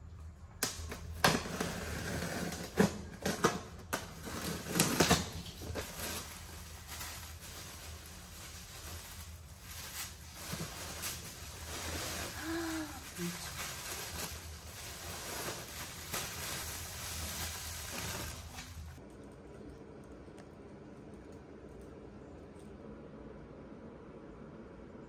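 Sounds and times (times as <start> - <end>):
plastic bags rustling: 1.7 - 19.4.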